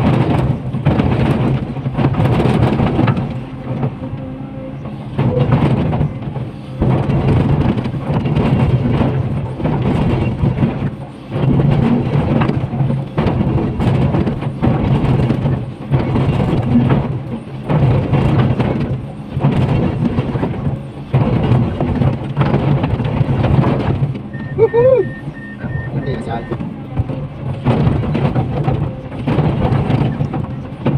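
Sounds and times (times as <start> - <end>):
excavator diesel engine under load: 0.0 - 30.9.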